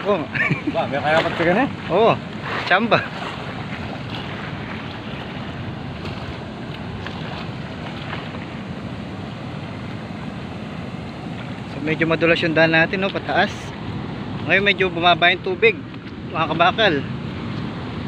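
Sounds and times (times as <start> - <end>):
churning river water: 0.0 - 18.0.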